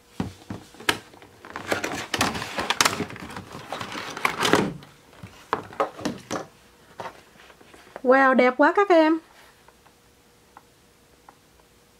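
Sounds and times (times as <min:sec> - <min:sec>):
cardboard box crinkling and knocking: 0:00.2 - 0:07.2.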